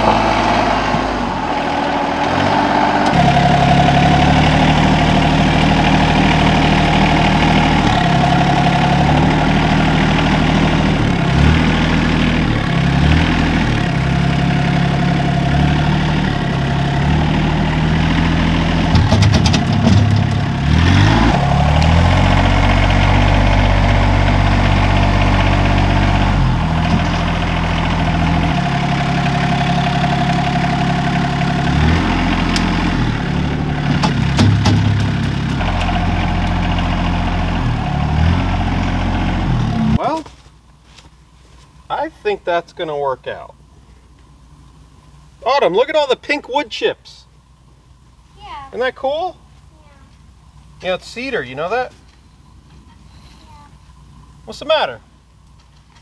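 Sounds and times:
tractor engine running: 0.0 - 41.4.

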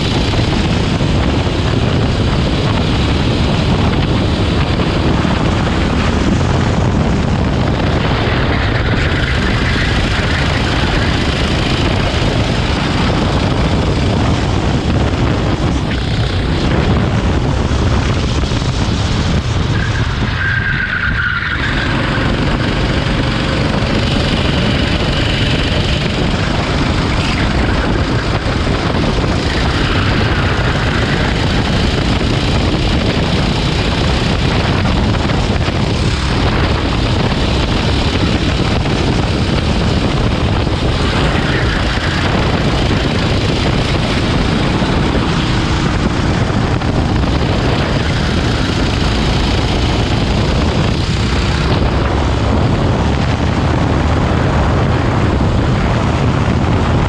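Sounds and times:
go-kart engine racing: 0.0 - 57.0
wind on microphone: 0.0 - 57.0.

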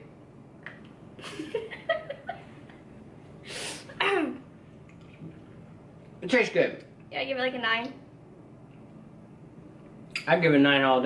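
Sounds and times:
person exhaling sharply: 3.4 - 4.0.

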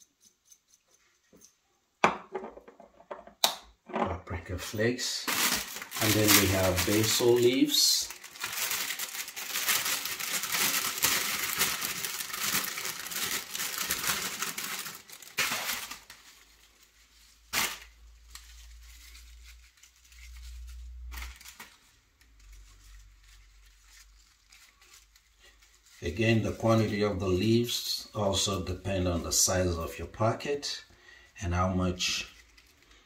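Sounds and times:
plastic bag crinkling: 4.3 - 28.9.

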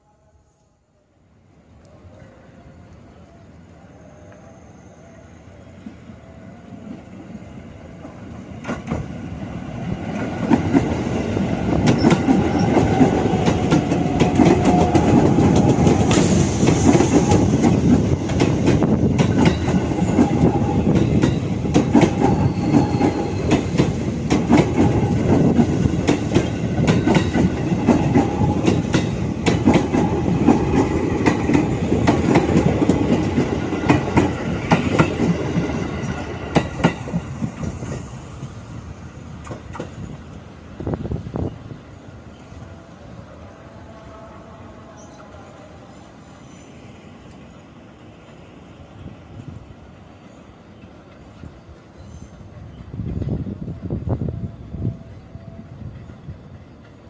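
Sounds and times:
train wheels rumbling on rail: 2.2 - 57.0
clickety-clack over rail joints: 8.0 - 38.6, 39.4 - 40.2.

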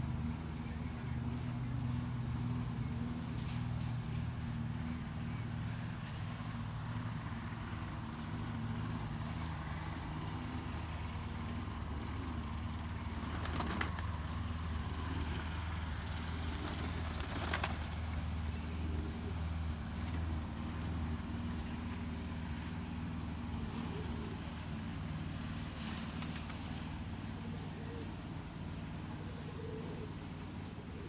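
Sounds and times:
low mechanical hum: 0.0 - 31.0
pigeon wing claps: 13.1 - 14.0, 16.5 - 18.0.

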